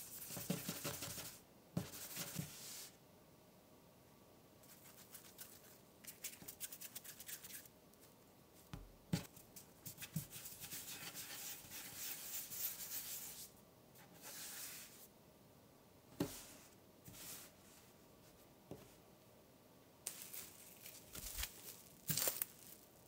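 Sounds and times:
hands rubbing dough: 4.6 - 13.5.

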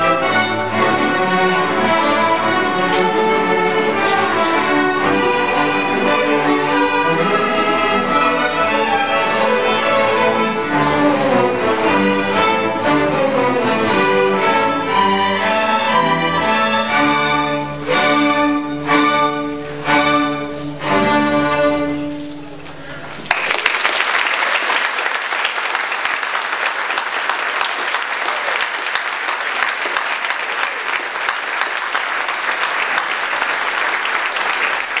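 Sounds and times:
string orchestra chords: 0.0 - 23.3
audience applause: 1.1 - 9.2, 23.2 - 35.0.

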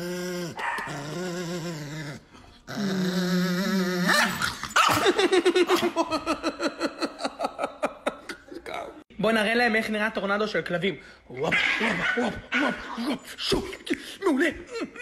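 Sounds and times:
dog growling and snarling: 0.0 - 5.1.

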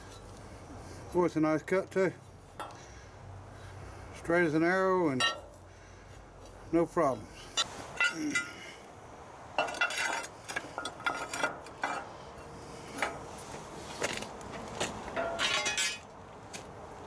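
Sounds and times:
steel pieces clanking together: 2.6 - 2.8, 5.2 - 5.6, 7.6 - 8.6, 9.6 - 12.1, 12.9 - 13.2, 15.2 - 16.1.

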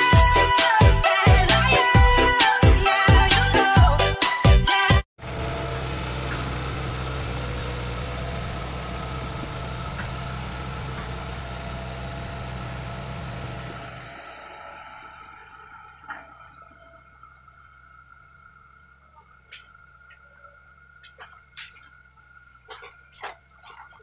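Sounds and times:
excavator engine running: 0.0 - 24.0.

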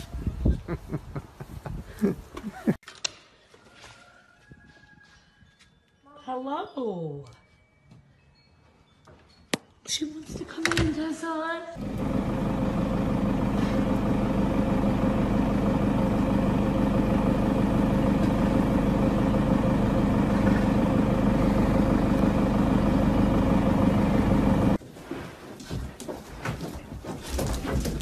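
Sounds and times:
vehicle engine running: 11.8 - 24.8.

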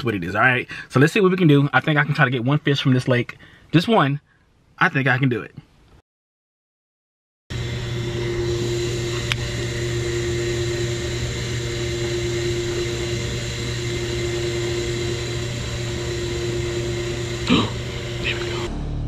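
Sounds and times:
mechanical hum: 7.5 - 18.7
constant whine: 7.5 - 18.8.

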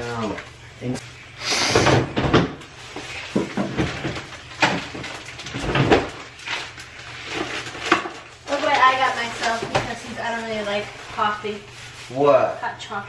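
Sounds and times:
items knocking against fridge shelves: 1.7 - 10.1
packaging rustling: 2.7 - 12.4.

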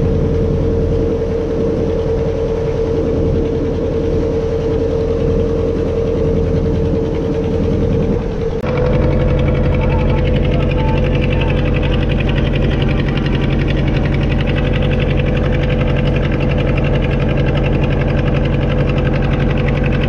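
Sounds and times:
outboard motor droning: 0.0 - 20.0.

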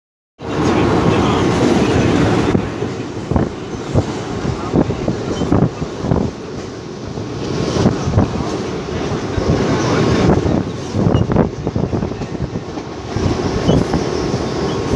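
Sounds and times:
train wheels rumbling on track: 0.4 - 14.9.

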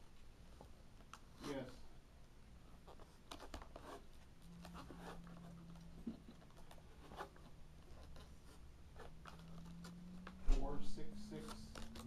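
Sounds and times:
faint low hum: 0.0 - 12.0
packaging rustling and clicking: 9.0 - 10.4, 11.4 - 12.0.

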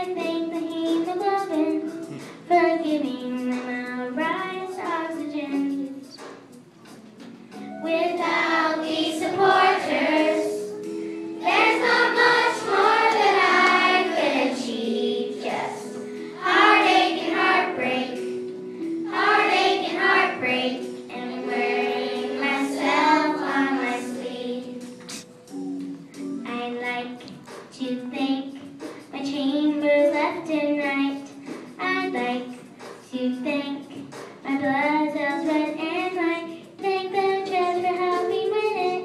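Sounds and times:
instrumental accompaniment: 0.0 - 39.0
children singing: 8.0 - 18.4, 19.1 - 25.2.

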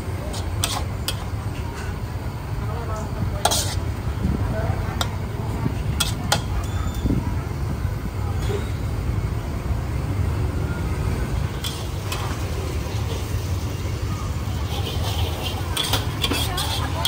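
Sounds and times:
low traffic rumble: 0.0 - 17.0
murmur of voices: 0.0 - 17.0.

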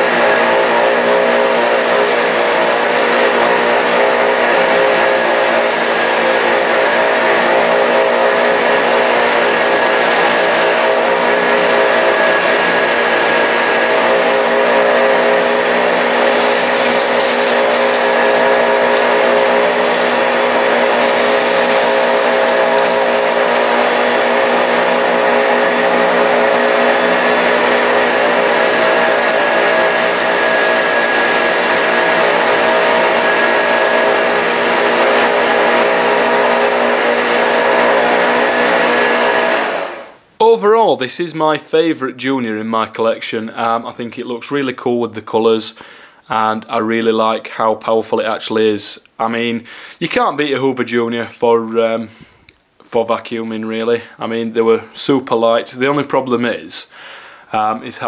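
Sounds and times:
vacuum cleaner running: 0.0 - 40.2.

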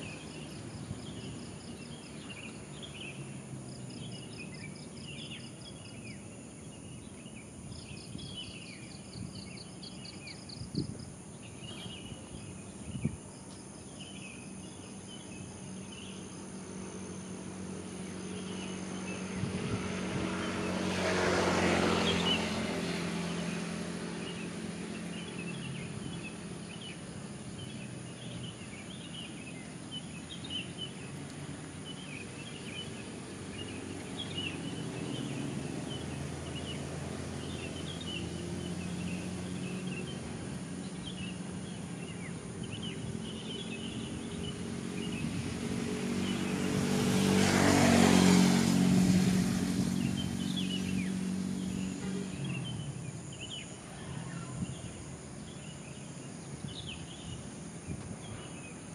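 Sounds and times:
engine passing by: 0.0 - 13.0, 13.8 - 58.9
birds chirping: 20.3 - 45.4, 49.6 - 58.9.

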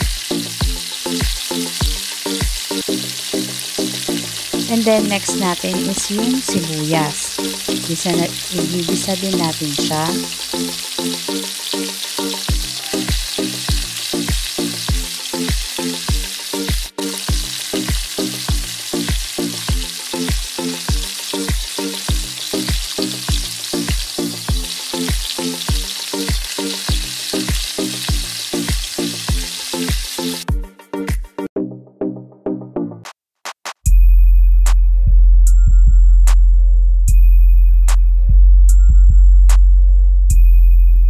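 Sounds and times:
onions sizzling in hot oil: 0.0 - 30.4
background music with steady beat: 0.0 - 41.0.

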